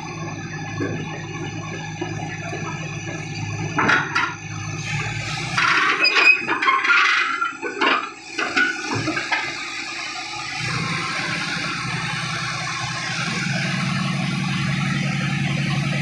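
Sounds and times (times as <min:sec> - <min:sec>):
diesel engine humming: 0:00.0 - 0:16.0
knocks and clanks on steel: 0:00.7 - 0:04.4.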